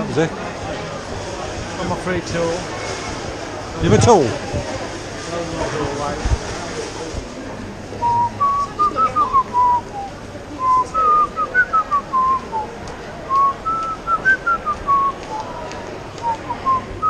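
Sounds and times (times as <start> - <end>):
person whistling a tune: 8.0 - 12.7.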